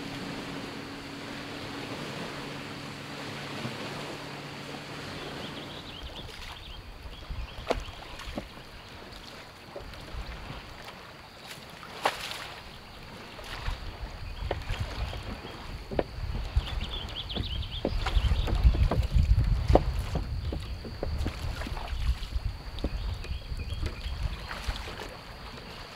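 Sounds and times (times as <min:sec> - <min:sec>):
distant motorboat engine humming: 0:00.0 - 0:25.9
light wind: 0:00.0 - 0:25.9
water: 0:00.0 - 0:25.9
sharp knocks and clicks: 0:15.9 - 0:16.1, 0:17.3 - 0:21.4.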